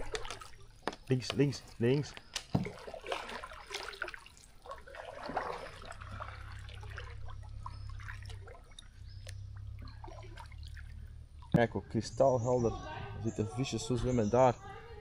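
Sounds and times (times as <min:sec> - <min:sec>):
paddle splashing through water: 0:00.0 - 0:11.5
water dripping off paddle: 0:00.0 - 0:11.7
low steady rumble: 0:04.8 - 0:15.0.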